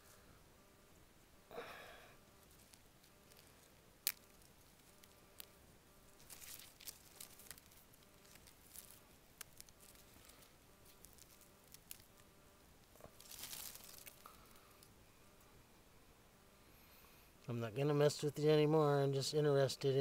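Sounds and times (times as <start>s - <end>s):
dry leaves rustling and crackling: 2.4s - 12.2s, 12.8s - 14.6s.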